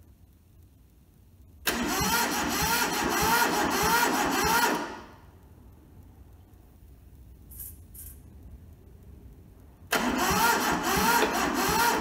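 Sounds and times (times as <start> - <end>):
diesel engine cranking: 1.6 - 5.2, 9.9 - 12.0.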